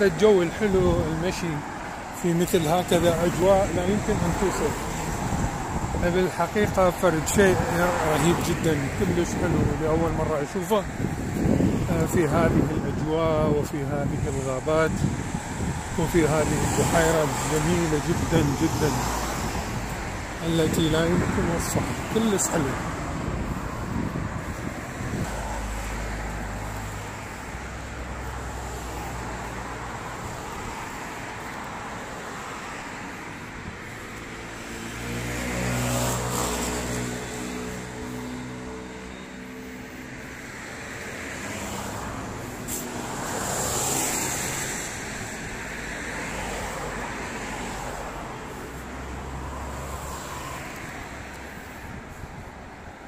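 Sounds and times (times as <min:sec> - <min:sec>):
wind rumbling on microphone: 0:00.0 - 0:38.6
road traffic passing: 0:00.0 - 0:53.0.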